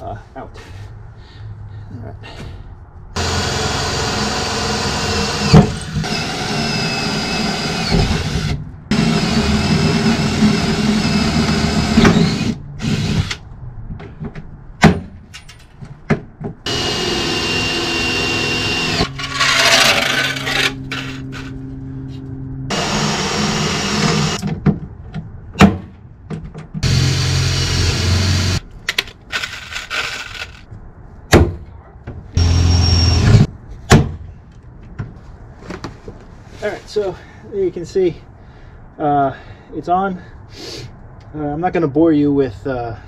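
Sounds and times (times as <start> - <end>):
cordless power tool whining: 3.2 - 13.4, 16.7 - 19.2, 22.7 - 24.4, 26.8 - 28.6, 32.4 - 33.4.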